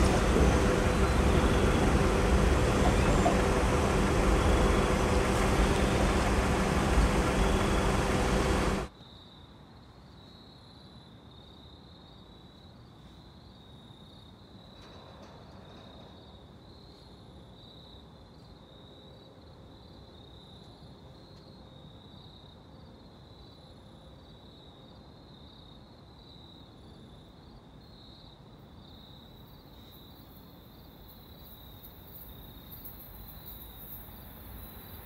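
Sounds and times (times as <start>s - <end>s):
train wheels on rails: 0.0s - 8.9s, 14.7s - 17.1s
crickets chirping faintly: 0.0s - 35.0s.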